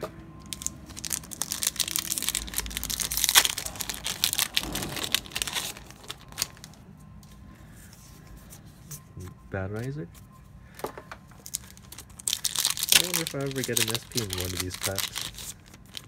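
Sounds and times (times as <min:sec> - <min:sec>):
wrapper tearing and crinkling: 0:00.4 - 0:06.8, 0:11.4 - 0:16.0.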